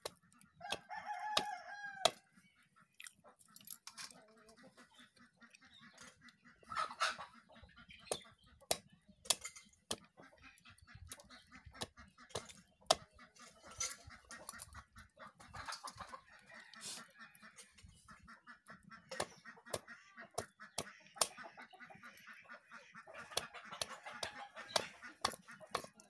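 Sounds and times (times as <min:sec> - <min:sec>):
chickens clucking: 0:00.0 - 0:26.0
blade chopping on wooden block: 0:11.8 - 0:13.1, 0:19.1 - 0:21.3, 0:23.2 - 0:26.0.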